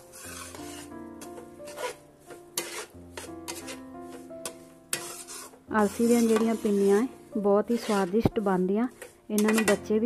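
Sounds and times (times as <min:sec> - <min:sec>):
metal spatula scraping metal pan: 0:00.0 - 0:10.0
soft background music: 0:00.0 - 0:10.0.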